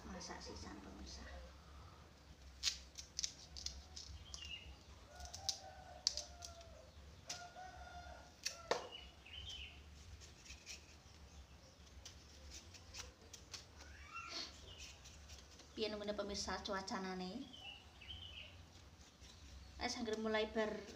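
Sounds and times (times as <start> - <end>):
knife cutting vegetables: 10.0 - 11.1, 11.9 - 15.8.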